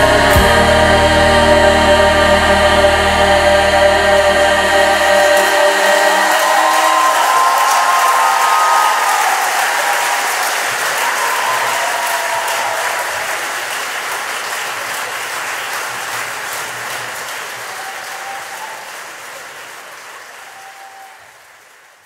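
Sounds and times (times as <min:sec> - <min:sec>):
audience applauding: 0:04.6 - 0:22.0.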